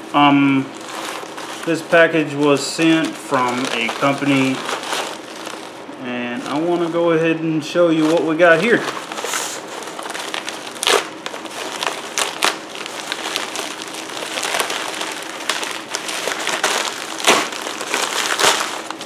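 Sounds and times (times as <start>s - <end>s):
plastic mailer crinkling: 0.0s - 19.0s
plastic tearing: 0.2s - 7.2s, 7.8s - 19.0s.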